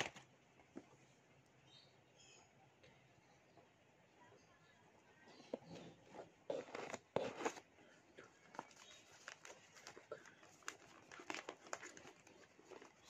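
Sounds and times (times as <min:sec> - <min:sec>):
paper wrapping rustling: 0:08.4 - 0:13.0.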